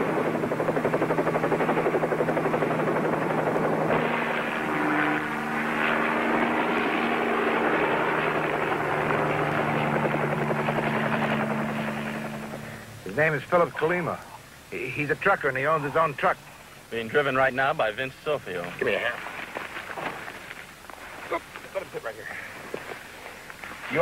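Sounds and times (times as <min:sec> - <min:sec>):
helicopter engine drone: 0:00.0 - 0:17.2
helicopter rotor chopping: 0:00.0 - 0:17.4.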